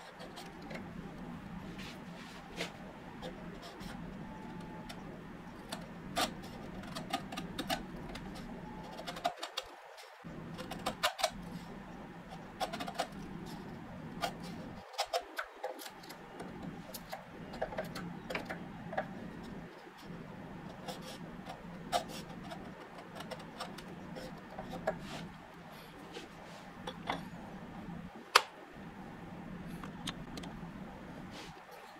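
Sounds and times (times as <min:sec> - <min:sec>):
low hum: 0:15.8 - 0:31.9.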